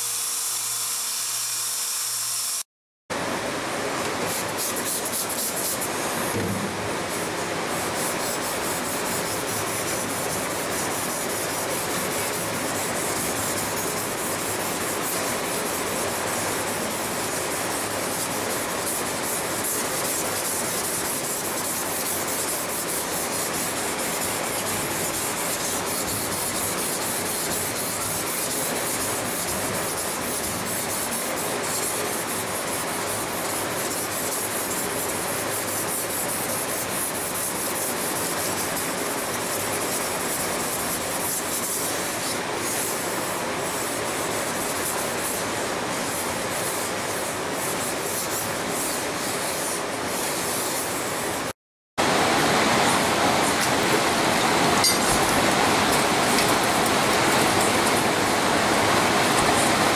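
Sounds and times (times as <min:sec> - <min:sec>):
knife scraping on whetstone: 0:07.9 - 0:43.0, 0:54.7 - 0:58.2.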